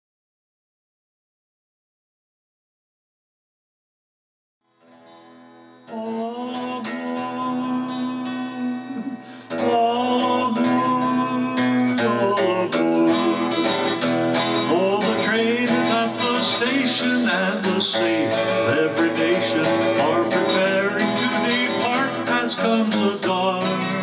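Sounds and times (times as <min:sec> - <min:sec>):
acoustic guitar strumming: 0:04.7 - 0:24.0
man singing: 0:05.9 - 0:24.0.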